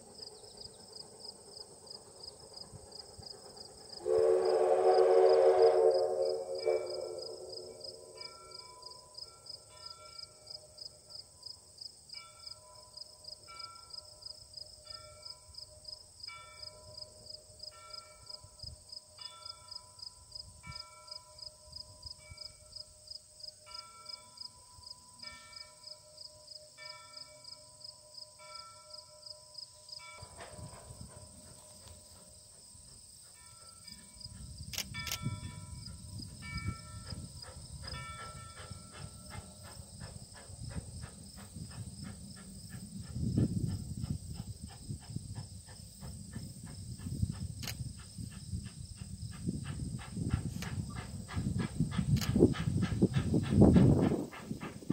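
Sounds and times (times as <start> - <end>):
insects chirping: 0.0 - 4.1, 5.6 - 54.9.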